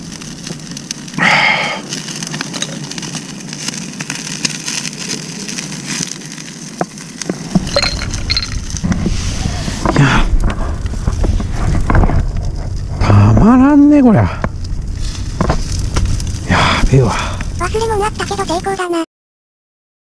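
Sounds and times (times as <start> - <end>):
loud rustle: 0.0 - 17.6
wood fire crackling: 0.0 - 19.0
low rumble: 7.1 - 18.4.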